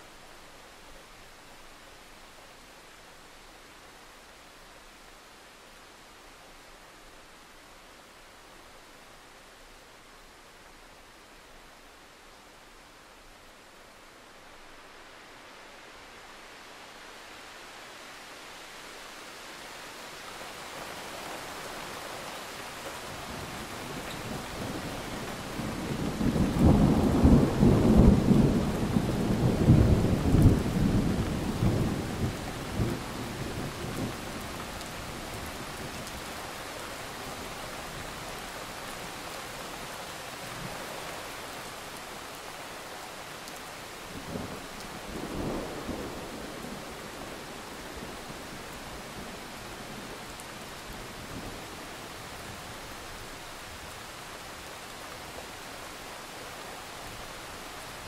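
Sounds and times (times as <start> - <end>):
steady rain: 0.0 - 58.0
thunder rumbling: 25.5 - 34.1.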